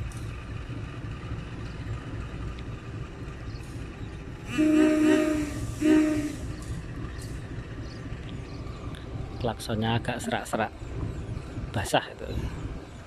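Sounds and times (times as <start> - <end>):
locomotive horn blasts: 4.4 - 6.6.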